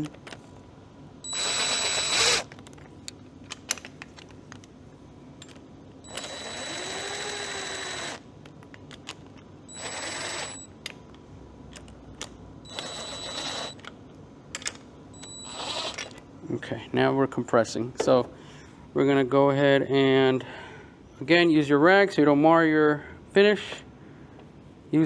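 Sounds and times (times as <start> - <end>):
impact driver running: 1.3 - 2.5, 6.1 - 8.2, 9.7 - 10.7, 12.7 - 13.8.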